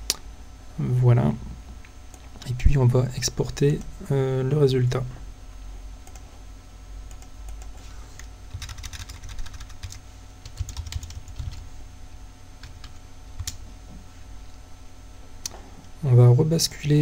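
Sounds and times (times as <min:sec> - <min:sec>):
computer keyboard typing: 0:07.1 - 0:07.8, 0:08.5 - 0:11.6, 0:12.6 - 0:13.6.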